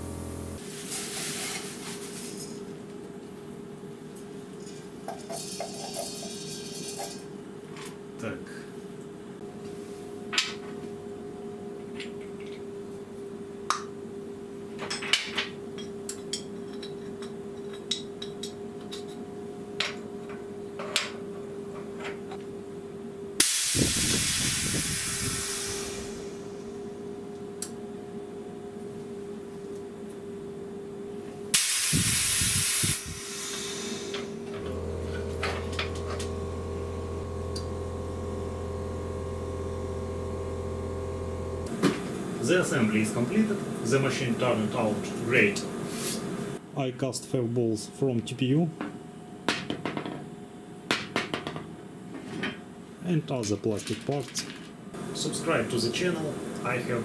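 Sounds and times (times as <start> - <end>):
steady low hum: 0.0 - 0.6, 15.6 - 49.5
compressed air hissing: 23.4 - 26.5, 31.5 - 34.4, 45.8 - 46.6.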